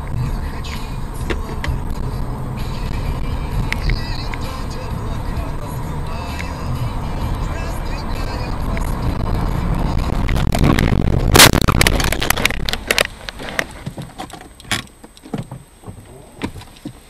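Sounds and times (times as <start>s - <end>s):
car engine and road noise: 0.0s - 17.0s
windshield cracking: 7.6s - 17.0s
loud crash impact: 10.3s - 12.4s
sharp cracks and clinks: 10.3s - 15.2s.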